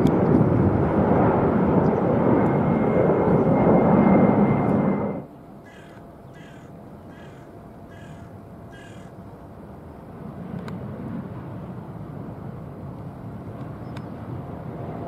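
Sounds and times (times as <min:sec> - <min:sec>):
jet engines roaring: 0:00.0 - 0:15.0
bird short calls: 0:05.6 - 0:09.1.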